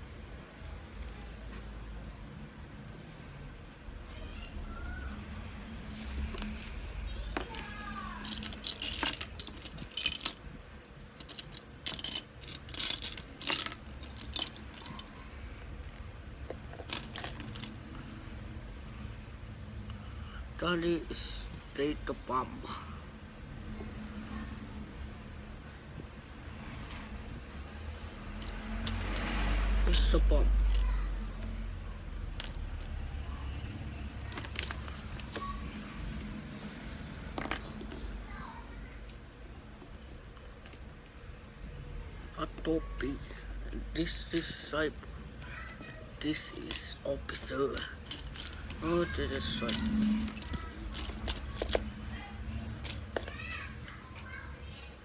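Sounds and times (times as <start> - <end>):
plastic bricks clicking and clattering: 8.2 - 10.4, 11.2 - 15.1, 15.9 - 17.8, 32.4 - 32.9, 49.4 - 51.9.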